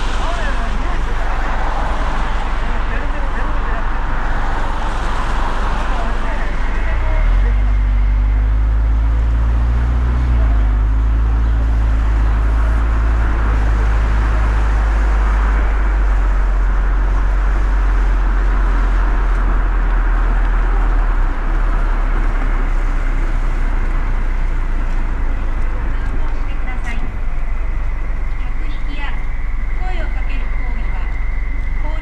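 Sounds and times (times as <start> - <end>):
tyre hiss on wet road: 0.0 - 6.7
car engine and road rumble: 0.0 - 32.0.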